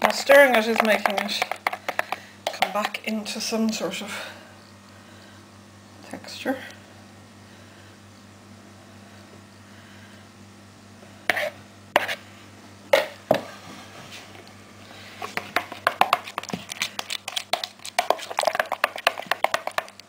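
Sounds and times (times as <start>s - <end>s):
stirring clacks in thick batter: 0.0s - 3.0s, 15.3s - 20.0s
utensil knocking plastic jug: 0.0s - 3.0s, 17.5s - 20.0s.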